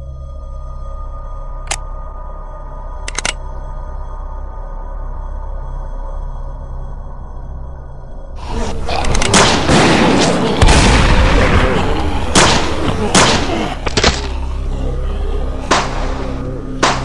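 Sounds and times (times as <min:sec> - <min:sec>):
people shouting and screaming: 0:08.4 - 0:17.0
gunshots: 0:08.8 - 0:14.5, 0:15.6 - 0:17.0
heavy boom: 0:09.3 - 0:14.4.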